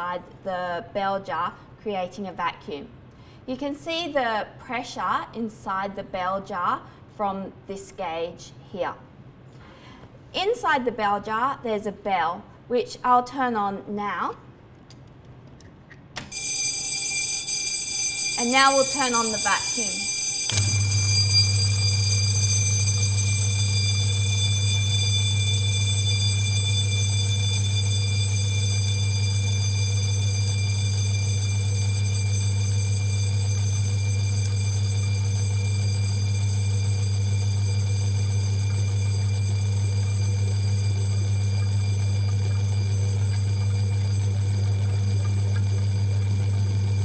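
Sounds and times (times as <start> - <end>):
electric bell ringing: 16.3 - 47.0
vacuum pump hum: 16.3 - 47.0.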